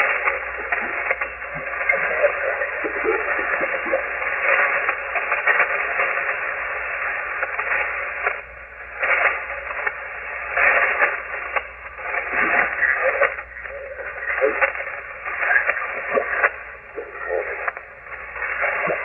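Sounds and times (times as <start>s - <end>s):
radio static hiss: 0.0s - 19.0s
static surges: 0.0s - 19.0s.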